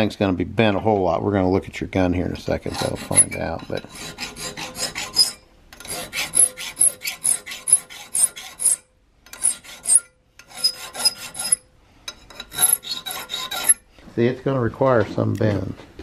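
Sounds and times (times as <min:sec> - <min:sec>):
hand file rasping on metal: 0:02.5 - 0:13.9.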